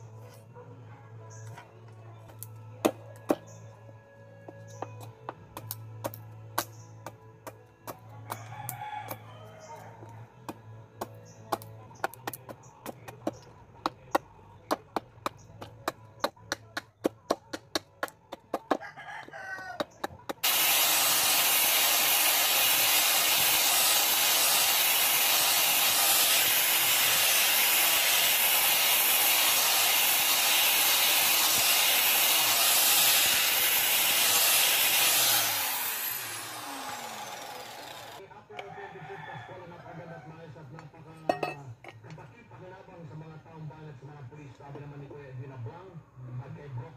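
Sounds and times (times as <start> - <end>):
rooster crowing: 8.2 - 10.3, 18.7 - 20.1, 38.6 - 40.5
angle grinder grinding wood: 19.8 - 38.2.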